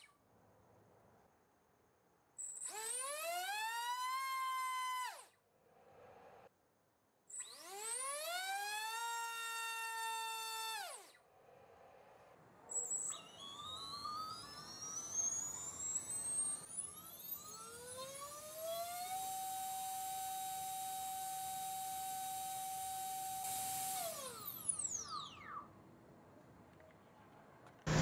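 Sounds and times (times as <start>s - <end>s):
electric motor whine: 13.1s - 25.5s.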